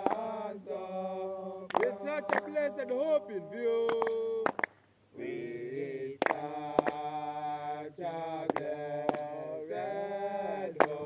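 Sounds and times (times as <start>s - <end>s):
men chanting together: 0.0s - 4.4s, 5.2s - 11.0s.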